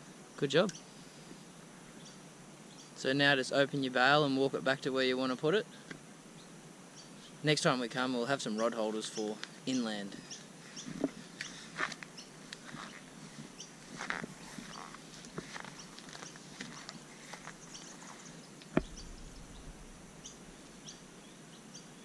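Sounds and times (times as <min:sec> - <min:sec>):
bird chirps: 0:17.2 - 0:22.0
sharp knock: 0:18.8 - 0:20.4.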